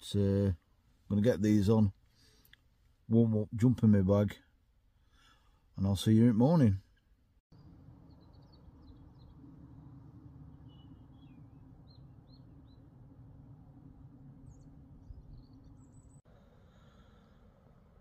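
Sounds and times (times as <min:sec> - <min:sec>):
songbirds chirping: 0:00.0 - 0:18.0
low background rumble: 0:07.2 - 0:18.0.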